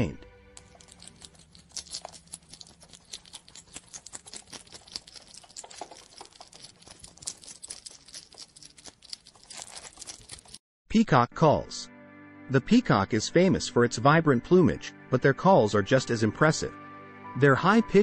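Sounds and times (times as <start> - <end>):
hedgehog snuffling and rustling: 0.6 - 10.6.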